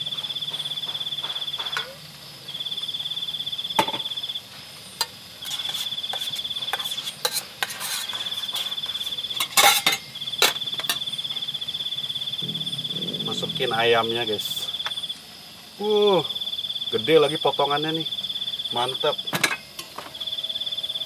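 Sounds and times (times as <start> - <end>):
cricket trilling: 0.0 - 21.0
spoon clinking on pots: 5.0 - 11.0.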